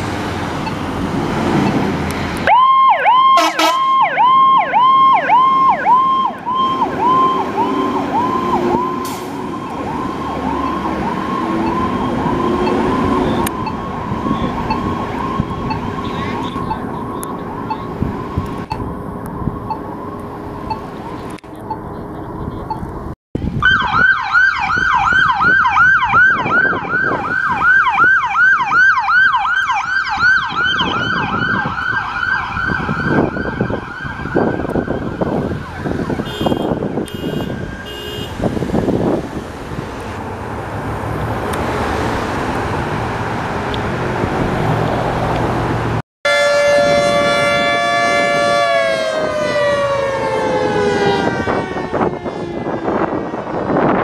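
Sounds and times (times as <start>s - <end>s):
road and engine noise: 0.0s - 54.0s
siren sliding down in pitch: 2.4s - 20.9s, 23.5s - 37.8s, 46.3s - 54.0s
yelp siren: 2.4s - 20.9s, 23.6s - 38.4s, 46.3s - 54.0s.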